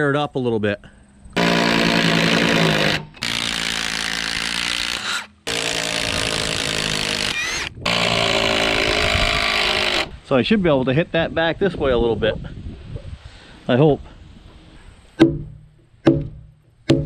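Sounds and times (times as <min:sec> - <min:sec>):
impact driver hammering: 0:15.2 - 0:17.0.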